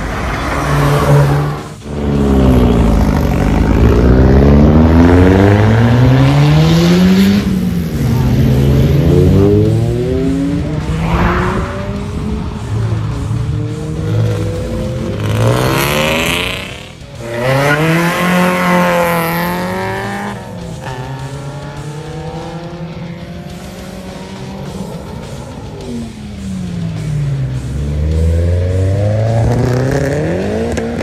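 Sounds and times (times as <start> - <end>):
car accelerating hard: 0.0 - 24.8
car engines revving: 0.0 - 31.0.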